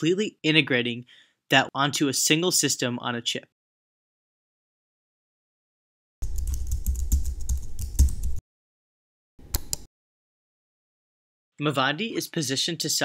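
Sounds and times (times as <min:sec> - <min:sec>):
keyboard typing: 0:06.2 - 0:08.4, 0:09.4 - 0:09.9
mouse click: 0:09.4 - 0:09.9.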